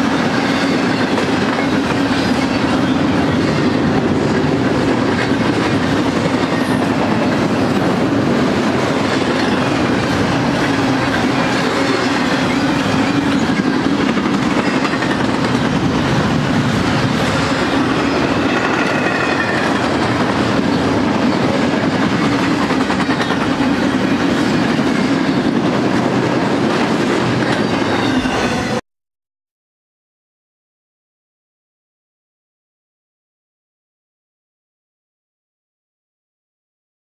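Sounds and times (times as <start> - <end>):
train wheels rumbling on rail: 0.0 - 28.8.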